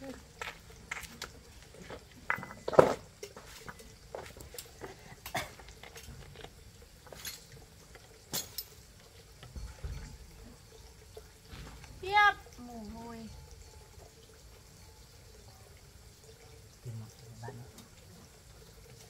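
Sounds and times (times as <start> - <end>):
metal tools clinking: 7.1 - 8.8.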